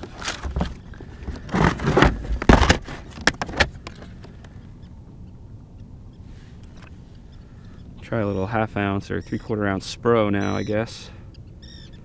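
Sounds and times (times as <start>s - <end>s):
plastic tackle box clattering: 0.0s - 3.8s.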